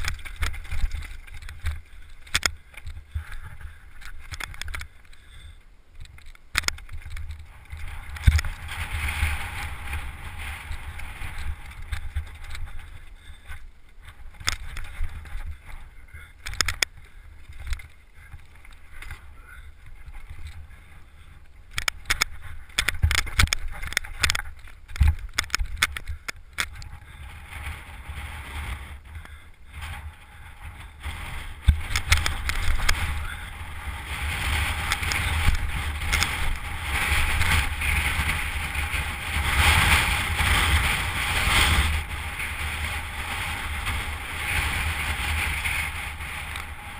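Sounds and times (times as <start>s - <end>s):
bike knocks and rattles: 0.0s - 5.0s, 21.7s - 29.4s, 30.6s - 46.9s
wind buffeting on microphone: 0.0s - 5.1s, 6.0s - 46.9s
bike tyres rolling: 0.0s - 46.9s.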